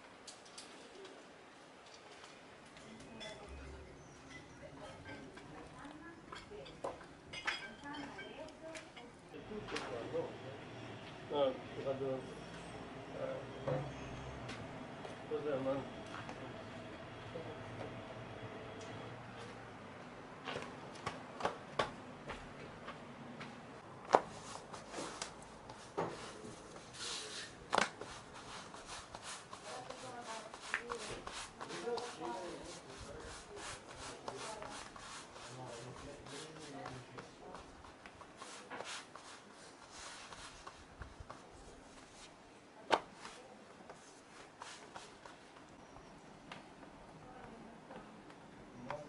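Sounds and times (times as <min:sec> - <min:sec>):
hands slapping dough: 0:24.0 - 0:26.2, 0:27.7 - 0:28.2
hands rubbing and patting dough: 0:24.0 - 0:45.7.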